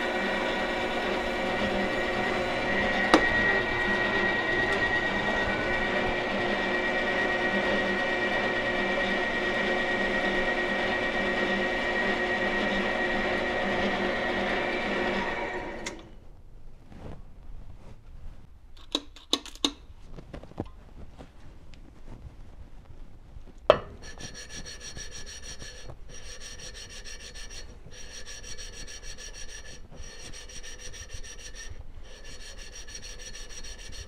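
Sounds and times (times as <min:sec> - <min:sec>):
metal lathe whining: 0:00.0 - 0:16.0, 0:23.7 - 0:34.0.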